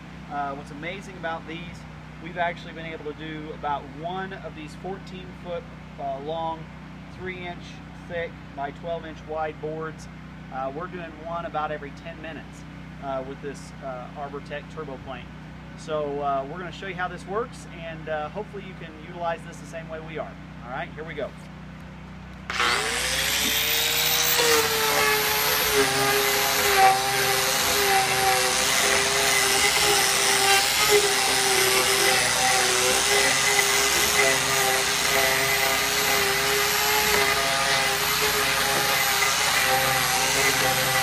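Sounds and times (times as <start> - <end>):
angle grinder planing timber: 22.5 - 41.0.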